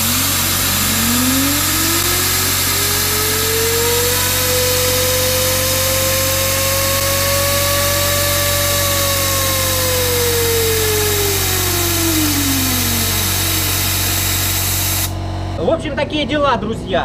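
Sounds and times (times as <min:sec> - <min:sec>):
loud rush of air: 0:00.0 - 0:07.1
turbine whine spinning down: 0:00.0 - 0:16.1.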